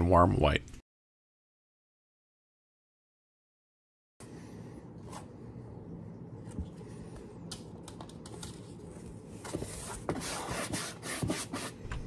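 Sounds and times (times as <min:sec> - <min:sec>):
brush rubbing paint: 0:09.5 - 0:11.8.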